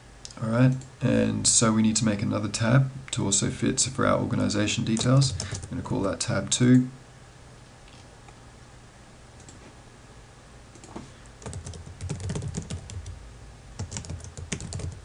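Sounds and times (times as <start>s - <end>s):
typing on computer keyboard: 10.8s - 13.2s, 13.8s - 15.0s.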